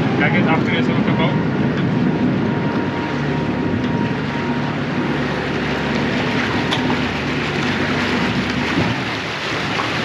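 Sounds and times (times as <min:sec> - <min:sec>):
boat engine humming: 0:00.0 - 0:10.0
water noise: 0:00.0 - 0:10.0
wind: 0:00.0 - 0:10.0.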